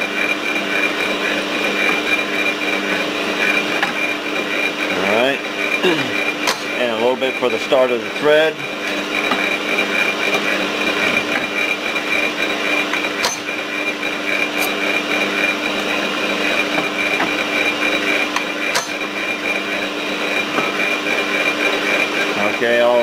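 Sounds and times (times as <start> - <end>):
milling machine spindle humming: 0.0 - 23.0.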